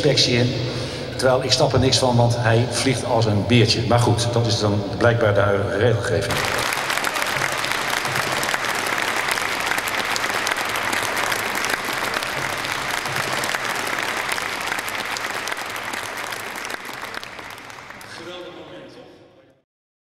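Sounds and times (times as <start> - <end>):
audience applauding: 6.3 - 18.8.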